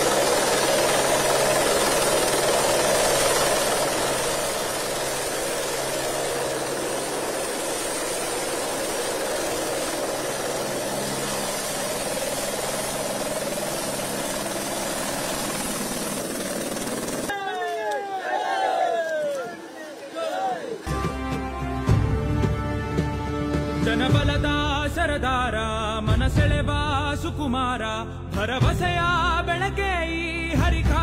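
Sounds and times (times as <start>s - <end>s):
helicopter turbine and rotor: 0.0s - 17.3s.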